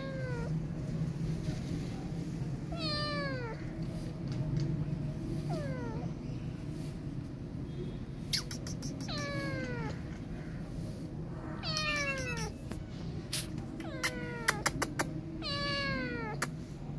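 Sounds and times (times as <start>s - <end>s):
kitten meowing: 0.0s - 0.5s, 2.7s - 3.6s, 5.5s - 6.0s, 8.4s - 10.2s, 11.5s - 12.8s, 13.8s - 16.5s.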